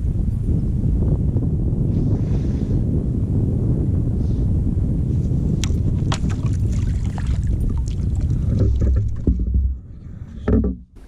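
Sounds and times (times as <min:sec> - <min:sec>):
wind buffeting microphone: 0:00.0 - 0:11.0
kayak taps and knocks: 0:05.6 - 0:11.0.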